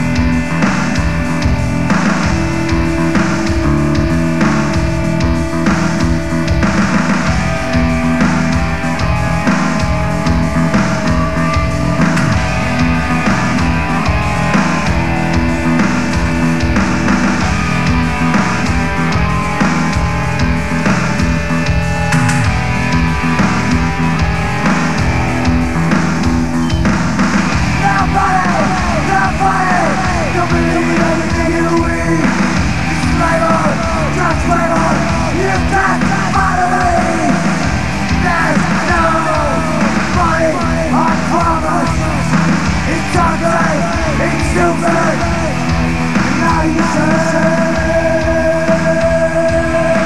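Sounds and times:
bass guitar: 0.0s - 50.0s
distorted electric guitar: 0.0s - 50.0s
drums: 0.0s - 50.0s
person yelling vocals: 27.8s - 32.3s, 33.0s - 37.4s.

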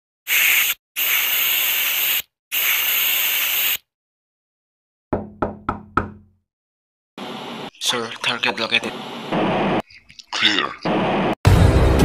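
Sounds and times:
radio static bursts: 7.2s - 11.4s.

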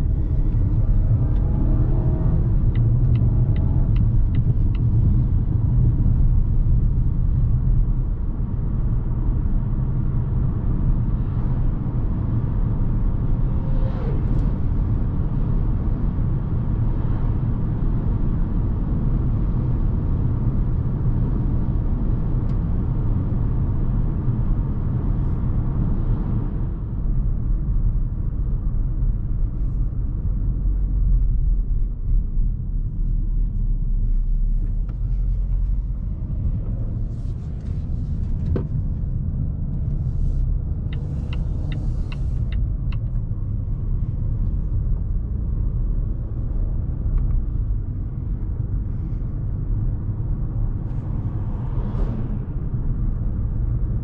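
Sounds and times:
car engine and tyre rumble: 0.0s - 54.0s
road and wind hiss: 0.0s - 54.0s
light ticks: 2.7s - 5.0s, 40.7s - 43.2s.

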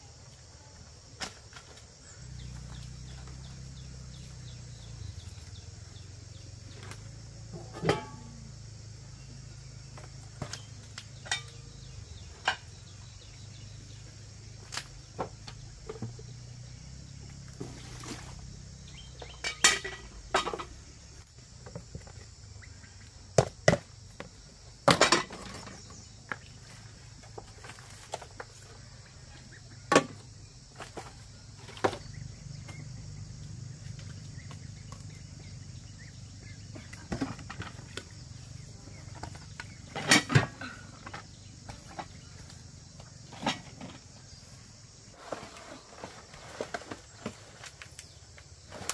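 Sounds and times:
insects chirping: 0.0s - 48.9s
sharp knocks and clinks: 19.2s - 20.8s.

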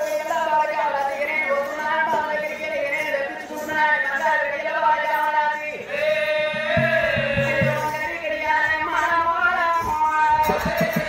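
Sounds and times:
woman singing: 0.0s - 11.0s
low drum beats: 6.4s - 8.4s, 10.4s - 11.0s.

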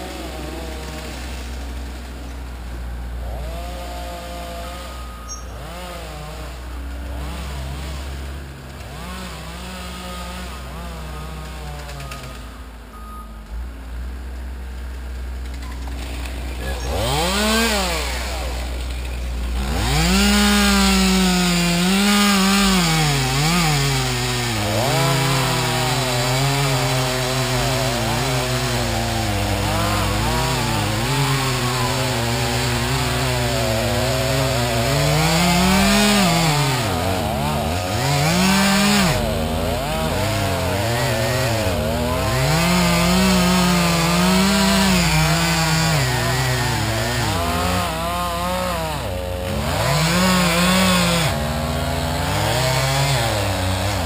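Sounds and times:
chainsaw cutting wood: 0.0s - 13.0s, 14.2s - 54.0s.

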